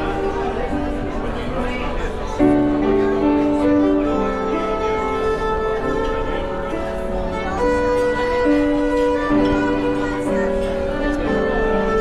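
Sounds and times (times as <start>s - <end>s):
grand piano: 0.0s - 12.0s
violin melody: 0.0s - 12.0s.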